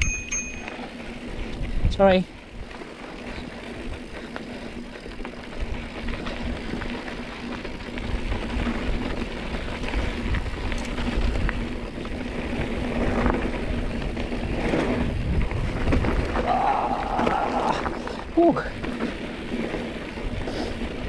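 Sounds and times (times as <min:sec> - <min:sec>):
bike rattling: 0:00.0 - 0:21.0
tyres rumbling on dirt: 0:00.5 - 0:21.0
wind on microphone: 0:01.3 - 0:02.7, 0:08.0 - 0:18.8.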